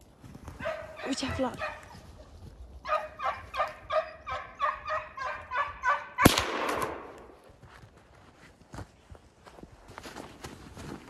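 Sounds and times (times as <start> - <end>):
dog barking rapidly: 0.6 - 2.0, 2.9 - 6.2
loud gunshot: 6.2 - 7.3.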